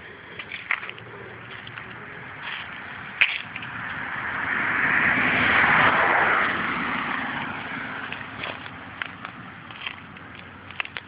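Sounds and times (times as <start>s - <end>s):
footsteps on gravel: 0.0s - 4.0s, 6.4s - 11.0s.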